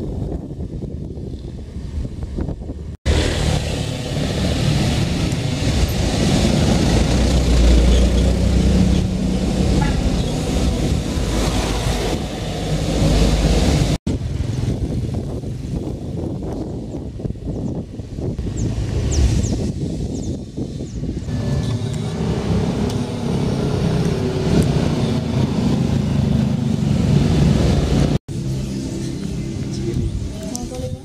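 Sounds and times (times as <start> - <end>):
wind noise on microphone: 0.0 - 31.0
van engine passing: 3.1 - 15.4.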